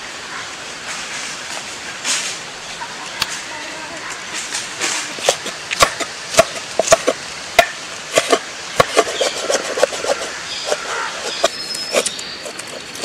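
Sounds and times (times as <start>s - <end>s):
knife chopping on wooden board: 5.2s - 12.1s.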